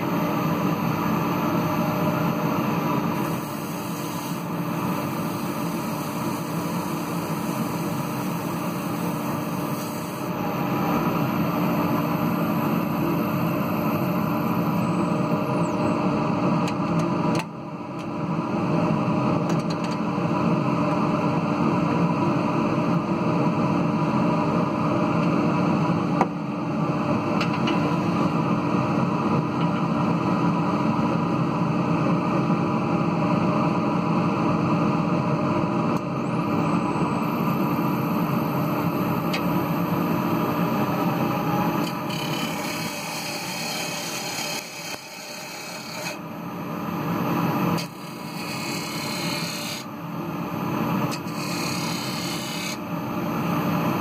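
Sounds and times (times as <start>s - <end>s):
wood lathe humming: 41.5s - 46.2s, 47.8s - 49.9s, 51.2s - 52.8s
gouge scraping wood: 51.3s - 52.8s.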